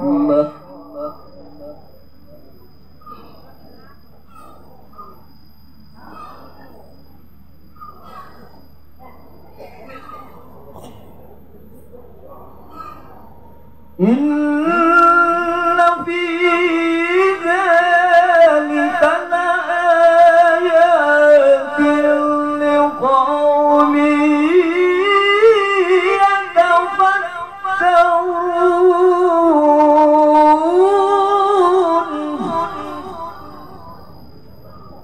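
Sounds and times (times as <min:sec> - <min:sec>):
man chanting into microphone: 0:00.0 - 0:01.7, 0:14.0 - 0:34.3.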